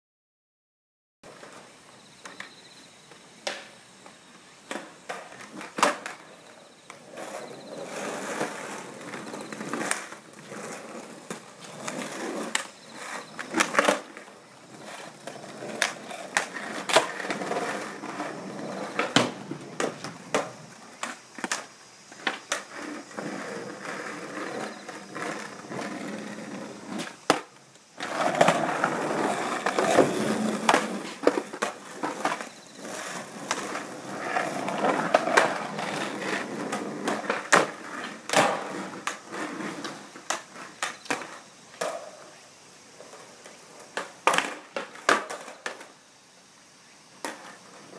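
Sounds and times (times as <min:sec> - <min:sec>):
skateboard wheels rolling on concrete: 0:01.2 - 0:47.9
skateboard clacking on ground: 0:02.2 - 0:03.8, 0:04.6 - 0:42.4, 0:43.0 - 0:45.9, 0:47.2 - 0:47.9.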